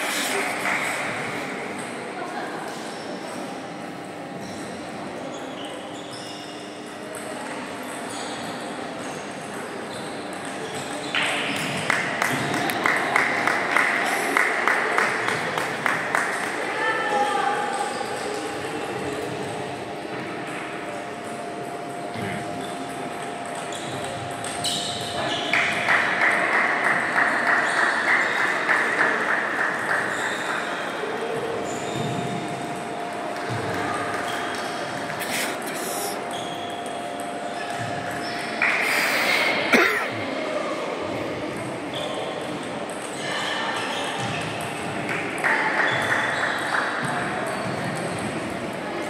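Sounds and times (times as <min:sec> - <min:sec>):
background murmur of voices: 0:00.0 - 0:49.0
shoe squeaks: 0:04.4 - 0:06.9, 0:08.1 - 0:08.7, 0:23.7 - 0:25.5, 0:30.1 - 0:31.0, 0:31.6 - 0:32.6, 0:34.2 - 0:39.5.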